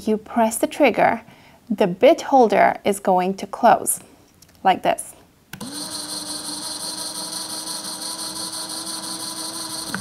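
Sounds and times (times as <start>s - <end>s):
cordless drill motor running: 5.6s - 10.0s.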